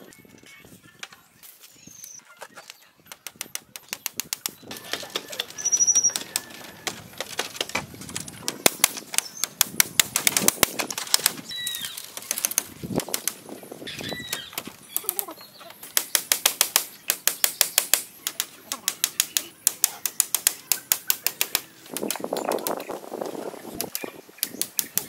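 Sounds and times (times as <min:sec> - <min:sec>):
bird chirps: 0:01.7 - 0:06.9, 0:09.1 - 0:10.0, 0:11.4 - 0:25.0
hammer tapping on bamboo: 0:03.1 - 0:11.4, 0:15.8 - 0:22.8.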